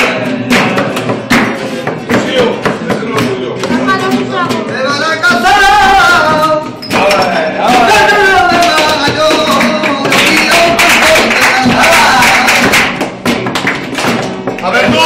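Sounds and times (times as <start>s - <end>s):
strummed guitar: 0.0s - 15.0s
person singing: 3.8s - 12.7s.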